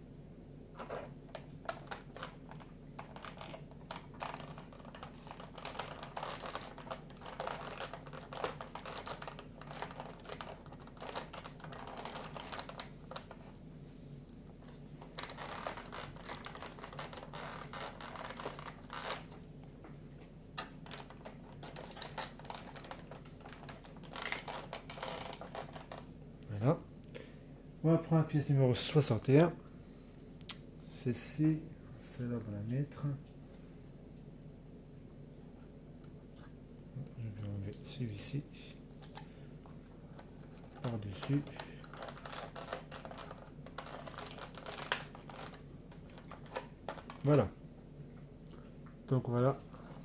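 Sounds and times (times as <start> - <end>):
cardboard pieces clicking and scratching: 1.7 - 13.3, 15.2 - 19.3, 40.8 - 47.3.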